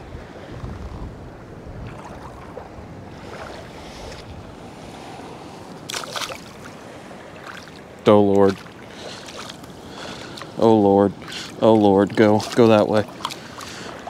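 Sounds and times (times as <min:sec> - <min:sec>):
wind on microphone: 0:00.0 - 0:07.3
small waves lapping: 0:00.0 - 0:14.0
fish splashing into water: 0:05.9 - 0:06.7.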